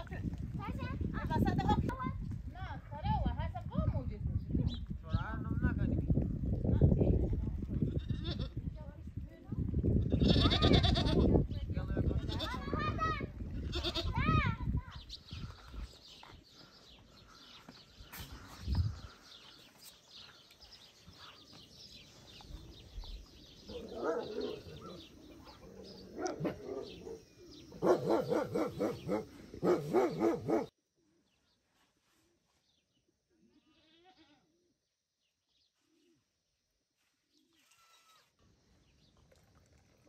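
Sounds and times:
goats bleating: 10.1s - 11.3s, 13.6s - 14.2s.

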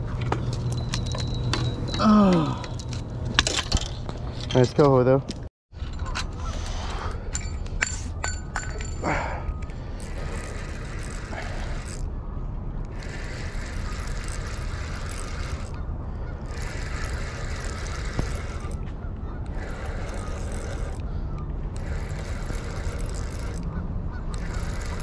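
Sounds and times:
wind buffeting microphone: 5.7s - 25.0s.

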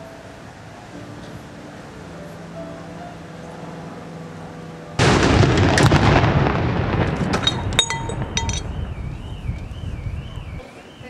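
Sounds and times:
howitzer firing boom: 5.0s - 10.6s
sharp metallic clinks: 7.4s - 8.8s.

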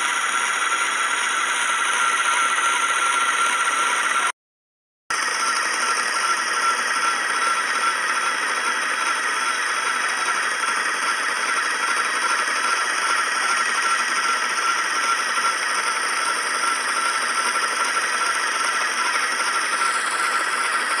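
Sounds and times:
electric spinning wheel whirring: 0.0s - 4.3s, 5.1s - 21.0s.

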